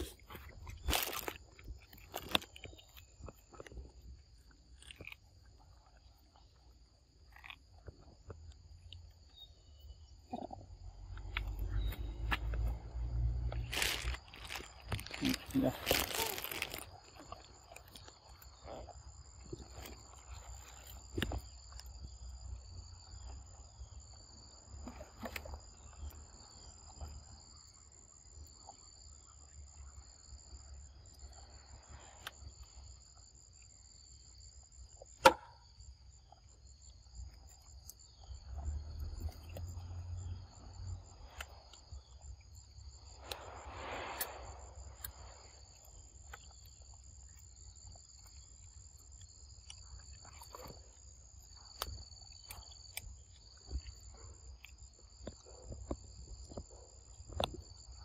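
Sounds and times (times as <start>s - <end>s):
monkey chewing and rustling: 0.0s - 8.6s
insects chirring: 0.0s - 58.0s.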